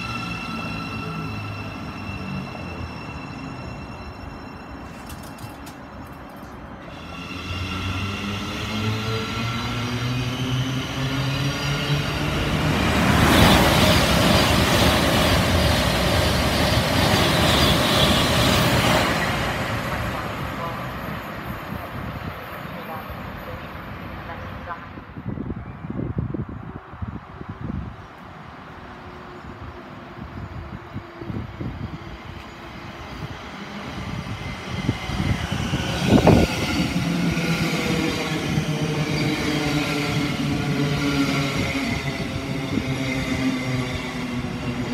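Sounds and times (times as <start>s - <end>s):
train carriages rushing past: 0.0s - 24.6s.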